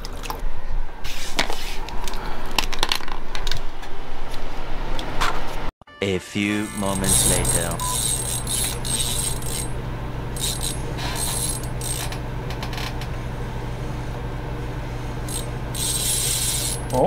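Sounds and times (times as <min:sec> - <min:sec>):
steady low hum: 0:06.4 - 0:17.0
fishing reel ratcheting whir: 0:06.7 - 0:09.8, 0:10.4 - 0:13.0, 0:15.3 - 0:17.0.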